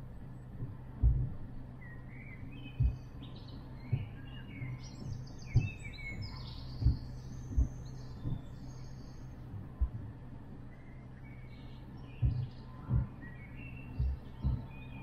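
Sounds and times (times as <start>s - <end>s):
steady low hum: 0.0s - 15.0s
low thumps: 0.6s - 1.5s, 4.9s - 8.6s, 9.4s - 10.6s, 12.1s - 14.8s
small birds singing and chirping: 1.2s - 15.0s.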